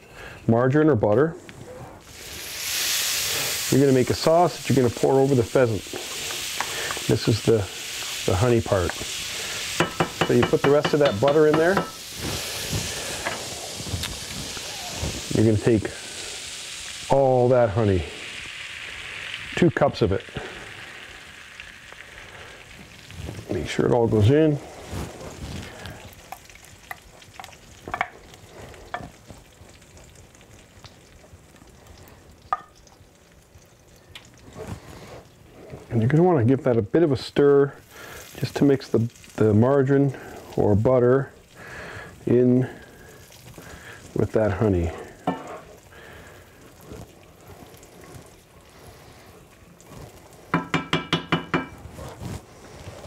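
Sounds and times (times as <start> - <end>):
butter sizzling in a frying pan: 2.0 - 53.0
utensil clinking against cookware: 9.8 - 12.0.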